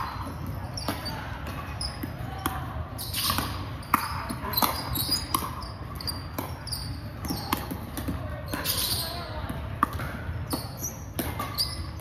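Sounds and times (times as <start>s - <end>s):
sneakers squeaking on wooden court: 0.0s - 12.0s.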